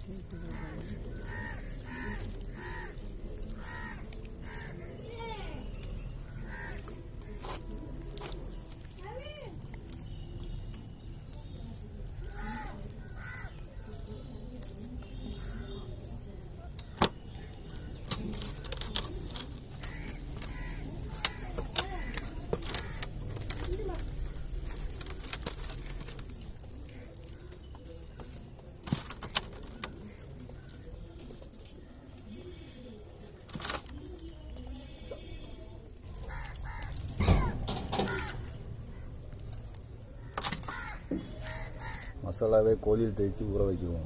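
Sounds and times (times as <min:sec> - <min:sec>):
sharp wet clicks: 0:00.0 - 0:42.8
hands squelching paste into chicken: 0:00.0 - 0:43.4
crows cawing: 0:00.3 - 0:07.6, 0:12.2 - 0:14.0, 0:19.3 - 0:24.0, 0:36.1 - 0:42.2.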